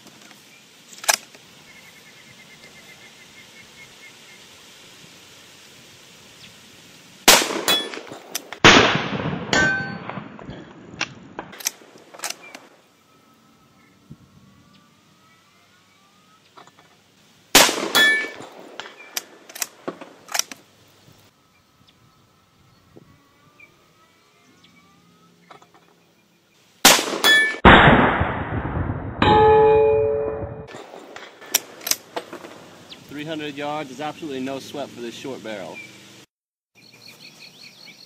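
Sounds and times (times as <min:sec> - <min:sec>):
rifle shots cracking: 0:07.3 - 0:10.4, 0:17.5 - 0:20.6, 0:26.8 - 0:28.8, 0:30.7 - 0:32.5
steel target ringing clang: 0:09.5 - 0:10.2, 0:17.8 - 0:18.4, 0:27.2 - 0:27.6, 0:29.2 - 0:30.7.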